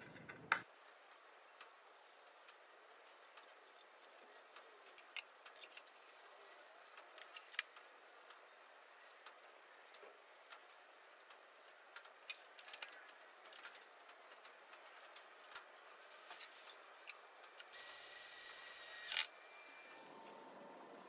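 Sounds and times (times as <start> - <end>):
cordless screwdriver running: 17.8 - 19.3.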